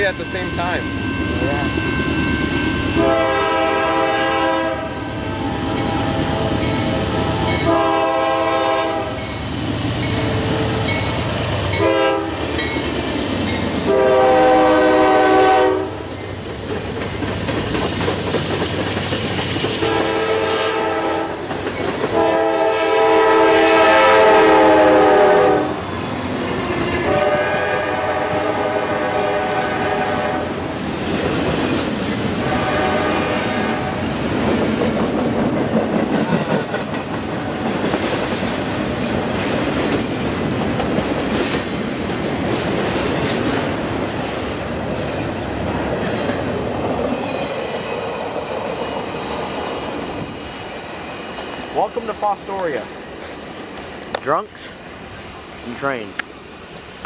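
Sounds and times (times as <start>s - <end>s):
locomotive air horn blasts: 2.3s - 9.2s, 11.8s - 12.4s, 13.8s - 16.0s, 19.8s - 21.4s, 22.1s - 25.8s, 27.0s - 30.6s, 32.4s - 34.1s
freight train wheels clacking: 5.6s - 15.3s, 15.9s - 22.4s, 29.4s - 33.5s, 34.2s - 56.6s.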